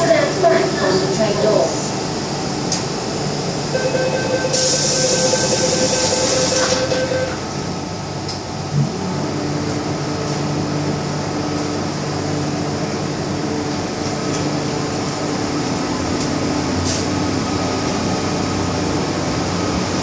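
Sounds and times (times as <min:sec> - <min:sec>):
train traction hum: 0:00.0 - 0:20.0
door warning tone: 0:03.7 - 0:07.5.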